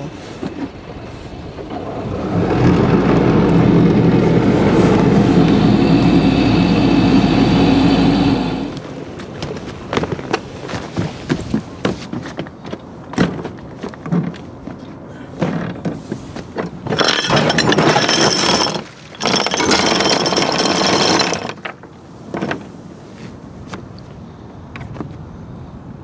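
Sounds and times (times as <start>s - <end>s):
anchor chain rattling out: 16.6s - 22.7s
chain clanking: 16.8s - 21.8s.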